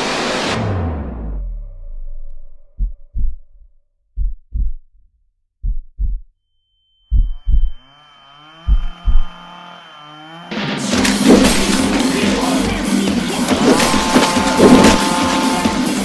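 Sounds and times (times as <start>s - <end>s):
heartbeat thumps: 2.7s - 5.0s, 5.6s - 6.3s, 7.1s - 7.8s, 8.6s - 9.4s
high steady tone: 5.6s - 10.9s
wavering drone: 6.6s - 16.0s.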